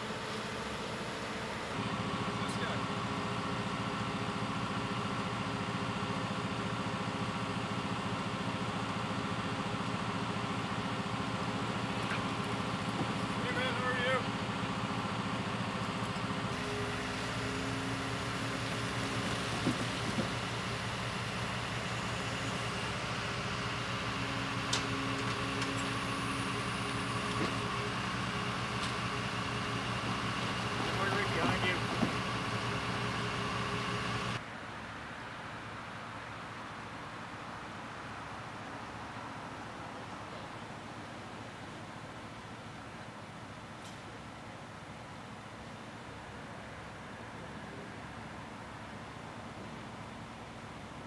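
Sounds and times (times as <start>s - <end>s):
truck engine idling: 0.0s - 34.4s.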